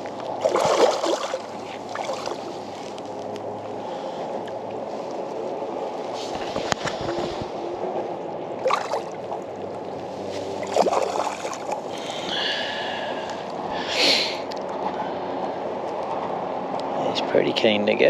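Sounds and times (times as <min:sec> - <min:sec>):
water sloshing against kayak: 0:00.0 - 0:05.3, 0:08.5 - 0:12.2
fish splashing: 0:00.4 - 0:02.4, 0:08.6 - 0:09.4, 0:10.5 - 0:12.3.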